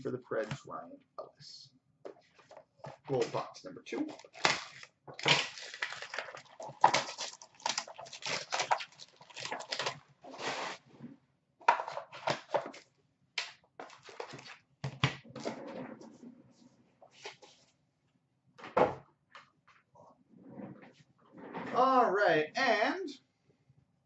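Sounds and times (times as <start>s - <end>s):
wrapping paper tearing: 4.1s - 10.8s.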